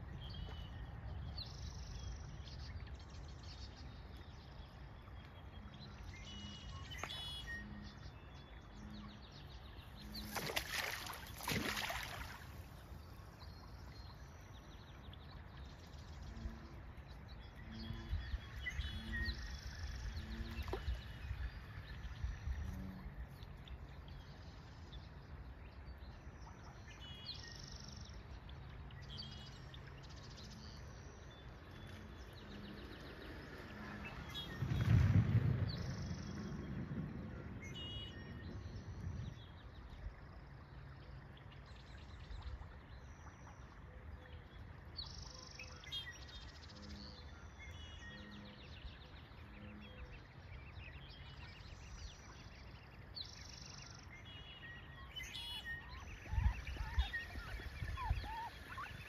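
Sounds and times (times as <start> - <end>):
steady low rumble: 31.5 - 40.7
small birds chirping: 41.8 - 59.0.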